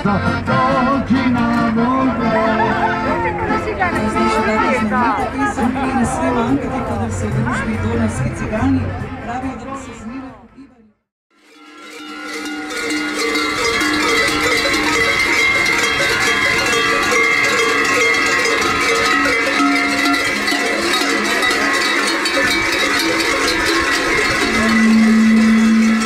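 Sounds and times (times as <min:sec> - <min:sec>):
large cowbells clanging: 0:11.4 - 0:26.0.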